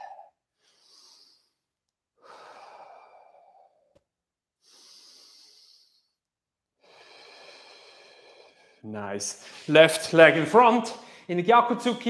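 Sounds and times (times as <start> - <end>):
person breathing deeply: 0.0 - 3.9, 4.6 - 6.2, 6.8 - 9.7, 11.0 - 11.3.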